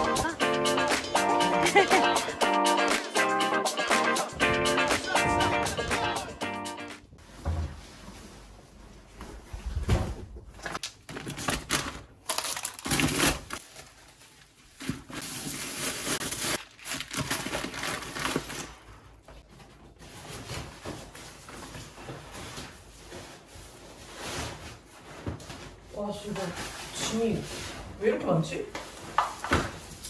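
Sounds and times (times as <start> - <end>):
bags rustling and crinkling: 10.5 - 30.0.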